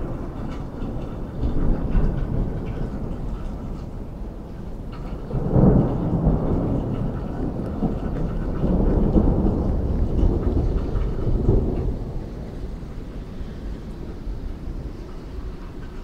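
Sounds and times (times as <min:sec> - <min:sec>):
thunder rumbling: 0:00.0 - 0:16.0.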